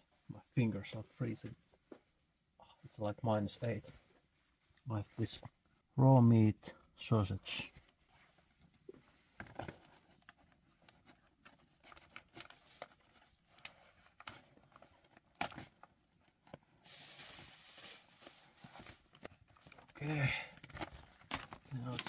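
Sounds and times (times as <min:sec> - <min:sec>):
plastic package crinkling: 0:11.8 - 0:22.0.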